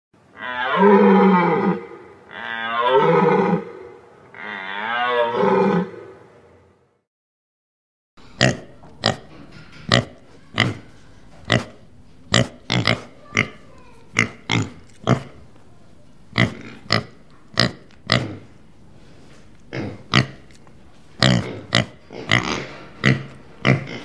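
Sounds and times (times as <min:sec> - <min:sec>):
pig grunting: 0:11.5 - 0:15.4, 0:16.4 - 0:18.5, 0:19.7 - 0:20.5, 0:21.2 - 0:24.0.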